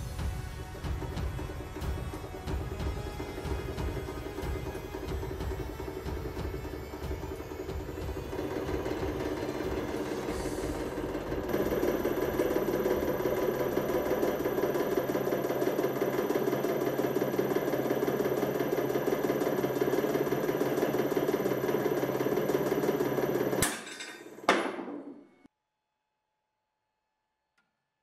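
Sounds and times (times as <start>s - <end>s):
hydraulic press motor running: 0.0s - 25.3s.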